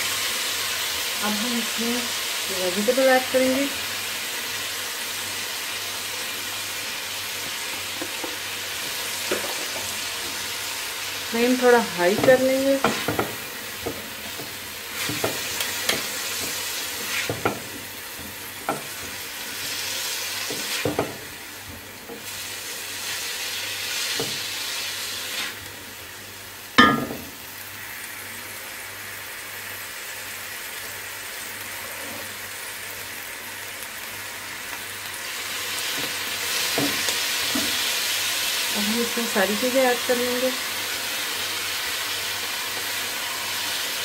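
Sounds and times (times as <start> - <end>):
food sizzling in oil: 0.0 - 44.0
spatula scraping and tapping pan: 12.1 - 19.2.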